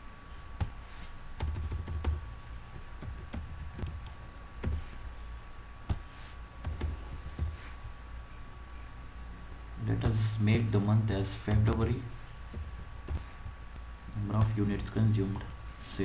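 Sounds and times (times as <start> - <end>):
computer keyboard keystrokes: 1.4 - 4.8, 6.6 - 7.6.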